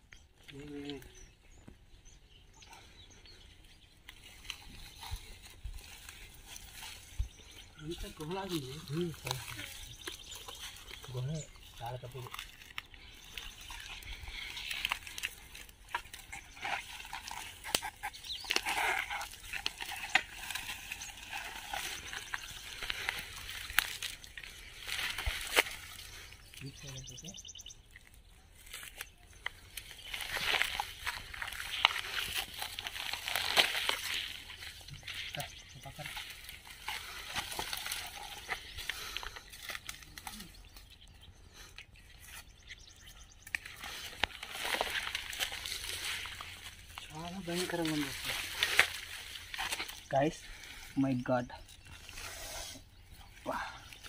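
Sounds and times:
branches rustling and crackling: 0.0s - 54.0s
twigs snapping: 4.0s - 26.4s, 27.9s - 40.9s, 41.6s - 50.8s
footsteps on dry ground: 28.7s - 40.0s, 43.6s - 50.9s.

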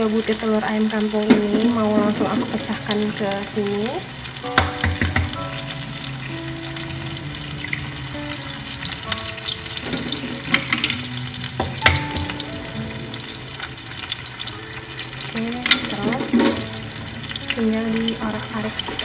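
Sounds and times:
food sizzling in a frying pan: 0.0s - 19.0s
soft background music: 0.0s - 19.0s
egg knocked on a pan: 4.5s - 5.4s, 11.6s - 12.4s.

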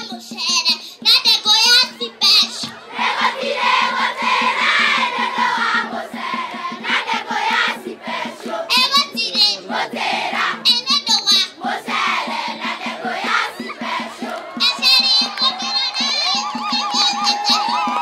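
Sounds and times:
schoolchildren singing: 2.3s - 14.7s
shrill wavering high cries: 14.6s - 18.0s.

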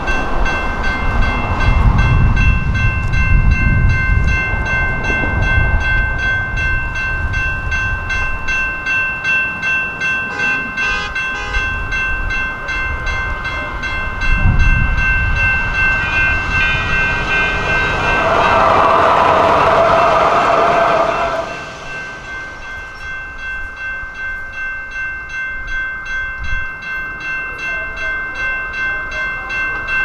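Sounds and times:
crossing warning bell ringing: 0.0s - 30.0s
low rumble: 14.1s - 23.8s.

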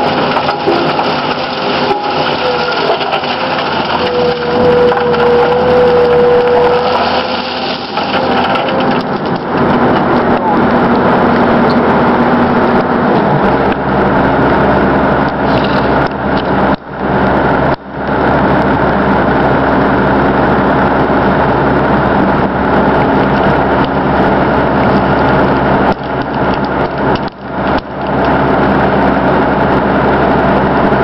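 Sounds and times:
soil and stones rattling in bucket: 0.0s - 10.1s
excavator engine hum: 0.0s - 31.0s.

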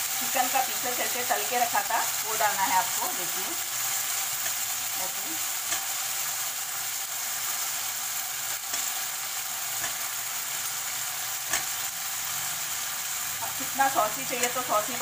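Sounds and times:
chicken sizzling in pan: 0.0s - 15.0s
spoon clicking against pan: 11.5s - 11.8s.

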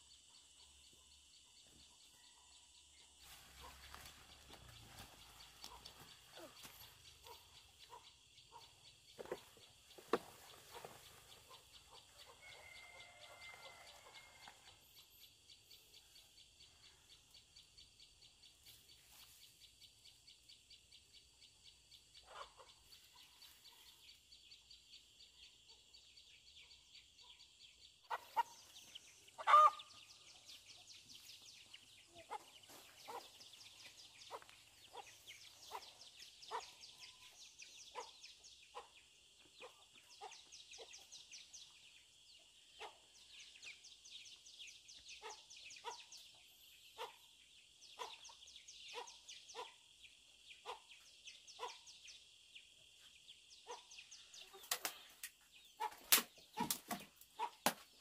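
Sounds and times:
chickens clucking: 3.5s - 14.4s, 22.2s - 23.4s, 28.1s - 30.0s, 32.0s - 37.3s, 54.4s - 57.8s
loud chicken squawk: 29.4s - 29.8s.

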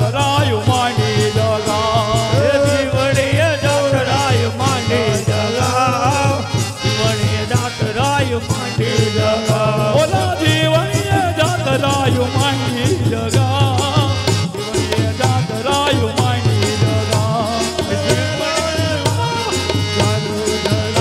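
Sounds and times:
steady drum beat: 0.0s - 21.0s.

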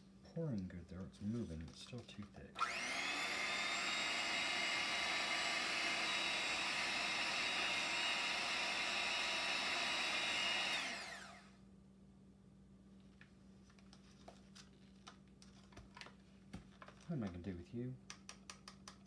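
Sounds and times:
electric hand mixer motor whine: 2.6s - 11.6s.

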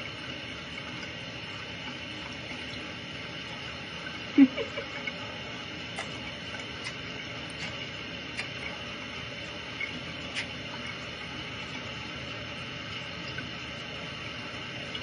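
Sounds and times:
running tap hissing: 0.0s - 15.0s.

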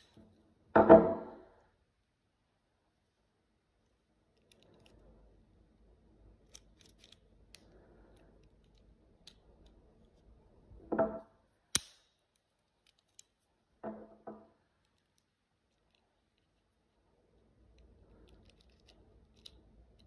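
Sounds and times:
faint rustling of gloves: 14.5s - 20.0s.

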